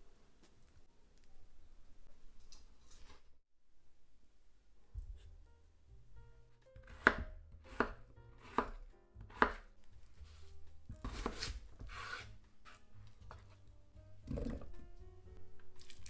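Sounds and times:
knife chopping on wooden board: 6.8 - 9.7, 10.9 - 12.4.

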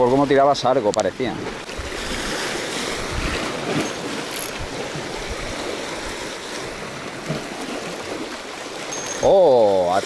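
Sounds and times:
sea waves washing against rocks: 0.0 - 10.0.

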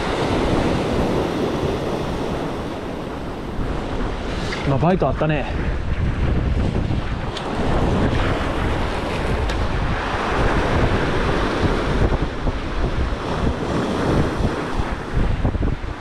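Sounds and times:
waves washing against rocks: 0.0 - 16.0
wind buffeting microphone: 0.0 - 16.0.

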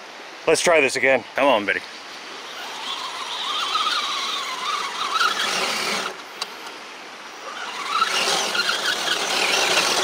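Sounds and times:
toy truck motor and gears whining: 2.4 - 6.2, 7.4 - 10.0.

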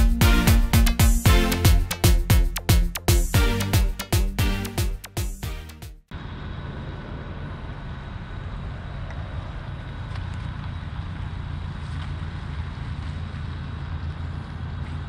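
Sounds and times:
distant low engine rumble: 6.1 - 15.0.

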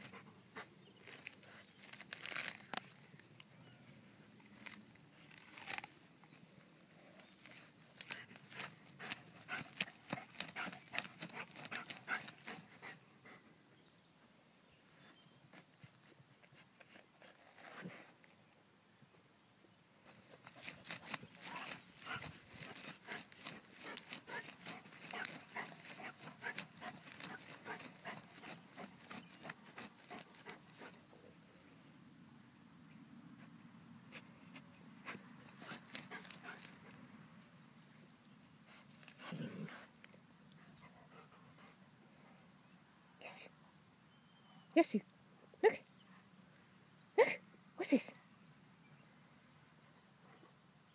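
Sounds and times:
paws scraping soil: 0.0 - 13.5, 15.0 - 18.4, 20.0 - 31.4, 33.4 - 37.0, 38.2 - 42.5
dog sniffing: 20.4 - 31.0.

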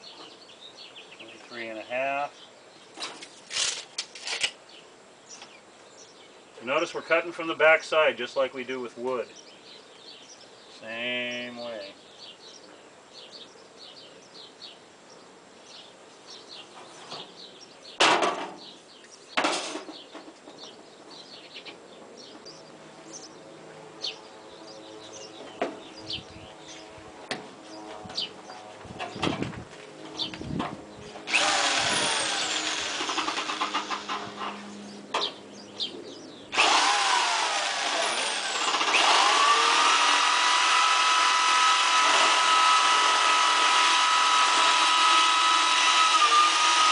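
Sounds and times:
electric metal shear whining: 31.1 - 35.0, 36.5 - 46.9.

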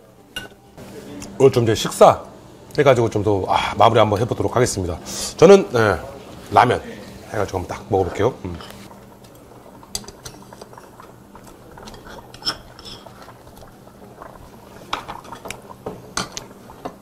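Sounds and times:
metal tongs clinking on bowl: 11.9 - 13.1.

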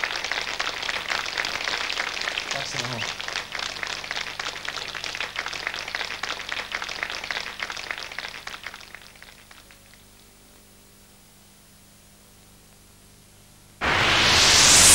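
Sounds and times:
audience applauding: 0.0 - 10.2
faint low hum: 0.0 - 14.2
tape hiss: 0.0 - 14.9.

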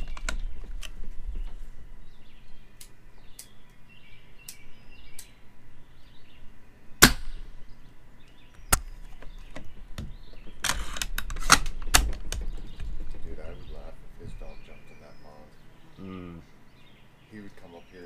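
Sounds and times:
airsoft rifle shot: 7.0 - 7.5.

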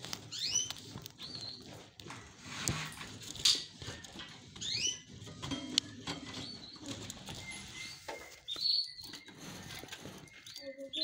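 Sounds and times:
canaries chirping: 0.0 - 11.0.

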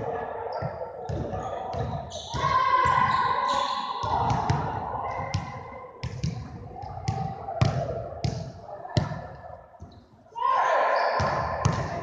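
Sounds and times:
basketballs bouncing on hardwood: 0.6 - 3.1, 4.0 - 9.2.

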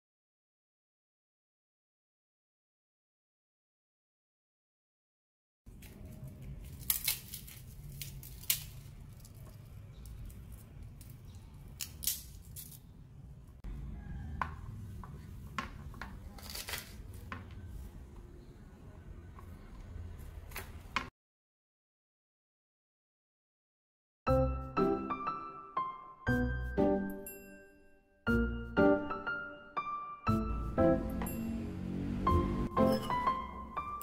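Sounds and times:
garlic skins crackling and snapping: 5.7 - 12.9, 16.1 - 17.1.

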